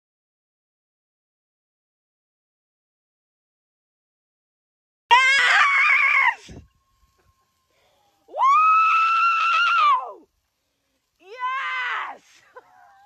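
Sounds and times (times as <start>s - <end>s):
person screaming with excitement: 5.1s - 6.6s, 8.3s - 10.3s, 11.2s - 13.0s.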